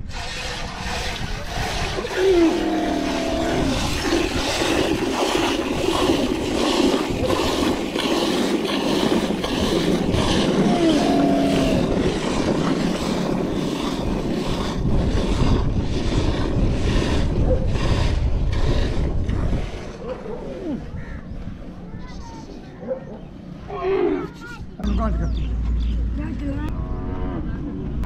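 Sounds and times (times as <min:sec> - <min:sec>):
milk squirting into metal pail: 0:00.0 - 0:10.6.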